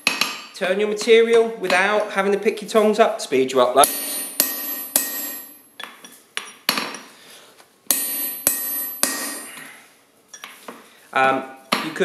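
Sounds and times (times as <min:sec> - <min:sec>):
hammer striking metal punch: 0:00.0 - 0:00.6, 0:03.8 - 0:07.0, 0:07.9 - 0:09.6.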